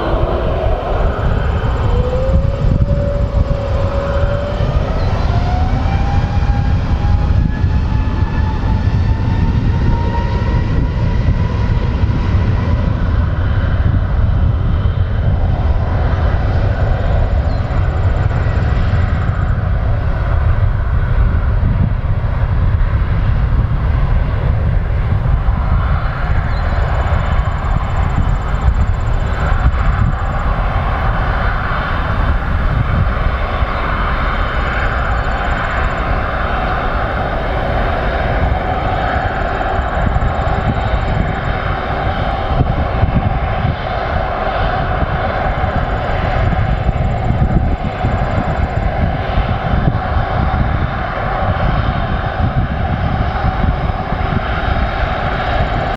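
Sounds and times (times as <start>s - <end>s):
jet airliner engines roaring: 0.0s - 55.9s.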